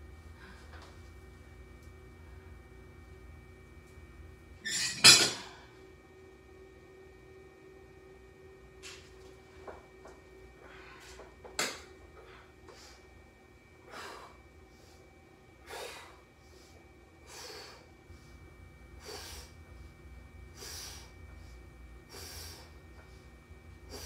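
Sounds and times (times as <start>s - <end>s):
faint low hum: 0.0s - 24.0s
man breathing forcefully: 13.8s - 14.4s, 15.6s - 17.9s, 20.5s - 21.1s.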